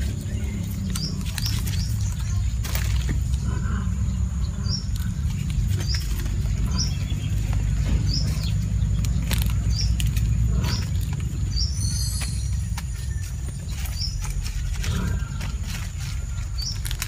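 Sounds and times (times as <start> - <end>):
bird chirping: 0.0 - 17.0
low rumble: 0.0 - 17.0
hands breaking ginger: 12.0 - 17.0.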